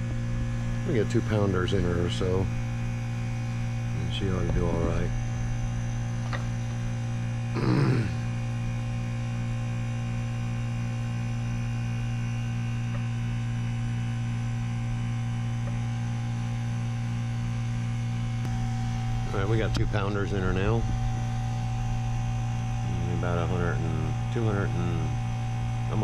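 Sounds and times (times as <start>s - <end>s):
heat pump electrical hum: 0.0s - 26.0s
short vocal sound: 7.5s - 8.3s.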